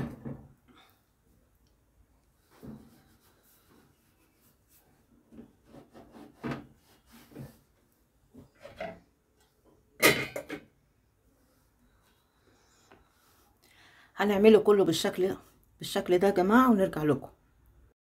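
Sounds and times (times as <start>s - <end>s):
faint rubbing and knocking: 2.3s - 9.2s
metal lid clattering on pan: 10.0s - 10.6s.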